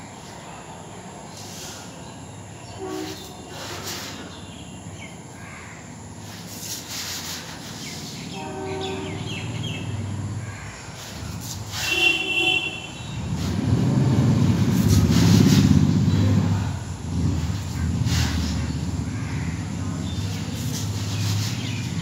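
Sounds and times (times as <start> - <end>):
low engine rumble: 12.7 - 22.0.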